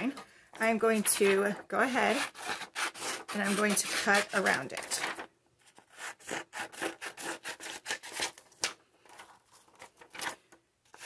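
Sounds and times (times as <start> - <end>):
scissors snipping paper: 1.0 - 8.7.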